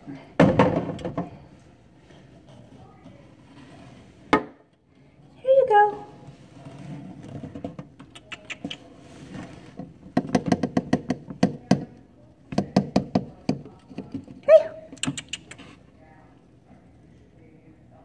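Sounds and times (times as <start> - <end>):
plastic tube tapping: 10.2 - 11.9.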